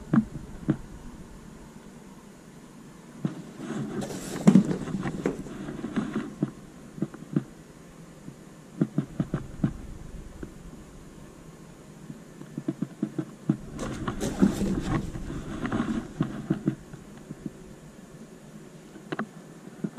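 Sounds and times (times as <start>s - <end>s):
cardboard box rustling and bumping: 3.7s - 6.2s, 13.6s - 16.8s.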